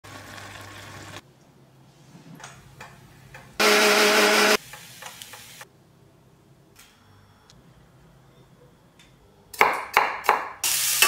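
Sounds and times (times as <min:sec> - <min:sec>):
mixer grinder motor whine: 0:03.6 - 0:04.6.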